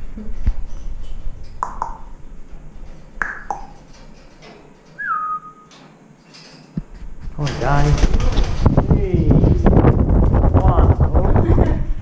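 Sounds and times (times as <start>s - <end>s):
parrot whistling: 5.0s - 5.7s.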